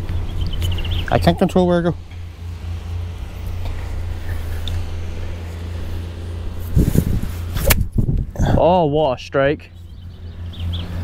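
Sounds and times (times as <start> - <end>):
wind rumble on microphone: 3.4 - 11.0
golf club striking ball: 7.5 - 8.0.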